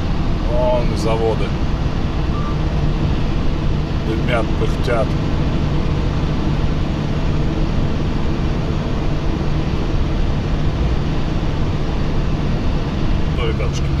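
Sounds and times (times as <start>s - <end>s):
road noise: 0.0s - 14.0s
truck engine drone: 0.0s - 14.0s.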